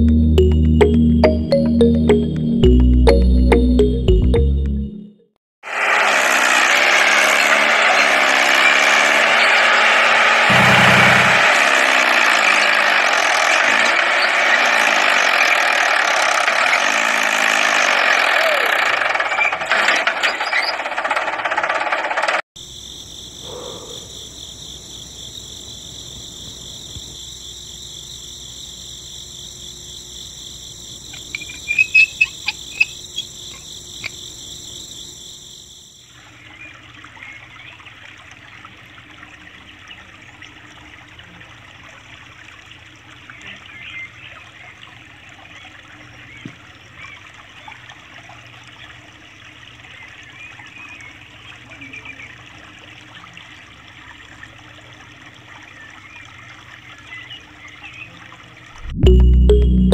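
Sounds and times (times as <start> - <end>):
shrill high pulsing tone: 10.5 - 11.6
sharp loud chirps: 10.5 - 11.8, 31.1 - 34.2
water trickling into water: 35.9 - 58.8.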